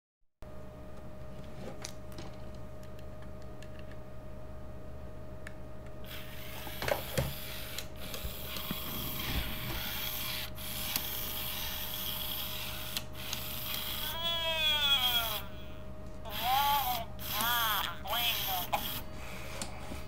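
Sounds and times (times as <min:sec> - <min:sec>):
electronic toy voice warbling: 0:09.8 - 0:19.0.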